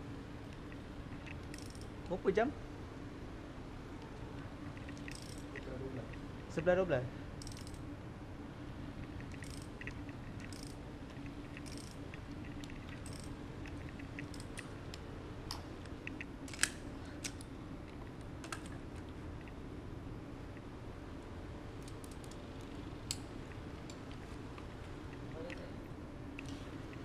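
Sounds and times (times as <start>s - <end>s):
sharp metallic clicks: 0.5s - 2.2s, 4.8s - 6.2s, 7.4s - 7.8s, 9.2s - 18.8s
socket wrench clicking: 1.2s - 1.9s, 4.8s - 5.6s, 7.4s - 7.8s, 9.2s - 10.8s, 11.5s - 17.5s, 21.8s - 23.2s.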